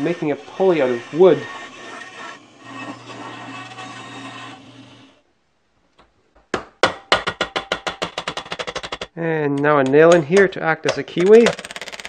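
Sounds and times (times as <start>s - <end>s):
bandsaw cutting wood: 0.0s - 5.2s
mallet knocking on pulley: 9.8s - 12.0s.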